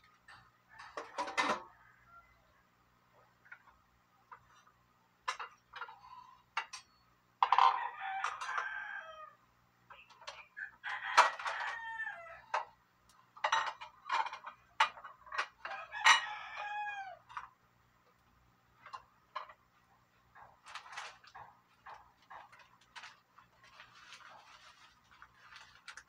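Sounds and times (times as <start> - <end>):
rooster crowing: 0.7 - 2.7, 7.6 - 9.4, 10.8 - 12.6, 15.6 - 17.4.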